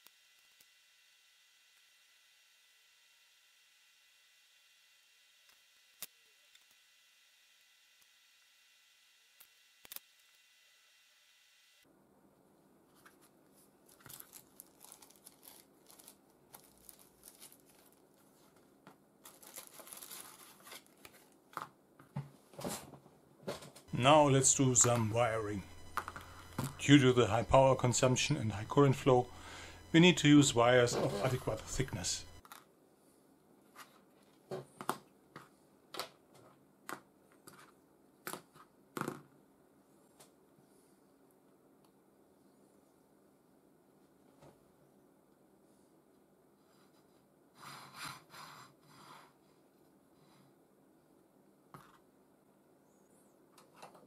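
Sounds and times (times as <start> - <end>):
packaging rustling: 13.8 - 21.6
film peeling off tape crackling: 13.9 - 18.6, 19.2 - 21.4.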